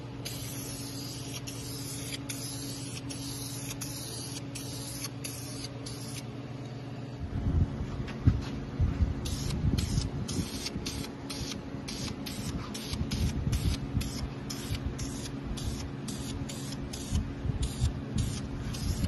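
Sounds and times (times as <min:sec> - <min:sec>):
low hum: 0:00.0 - 0:19.0
aerosol spray bursts: 0:09.3 - 0:19.0.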